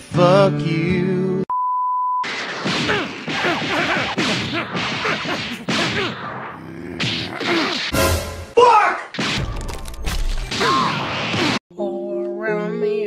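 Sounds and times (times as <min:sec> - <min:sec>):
steady beep tone: 0:01.5 - 0:02.3
punch impacts: 0:02.3 - 0:08.0, 0:09.2 - 0:11.6.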